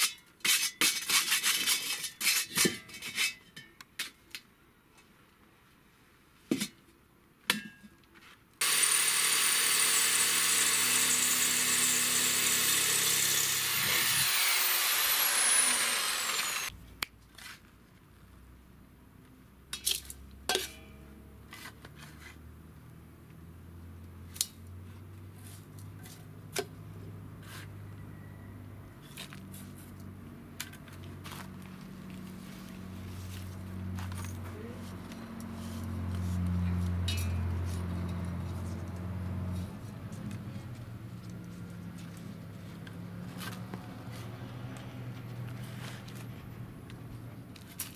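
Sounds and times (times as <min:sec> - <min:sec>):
power tool whining: 0:08.6 - 0:16.7.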